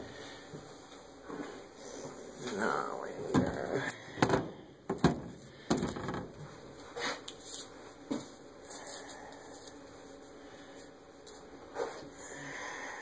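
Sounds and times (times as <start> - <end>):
objects knocking and clattering: 3.4 - 6.5.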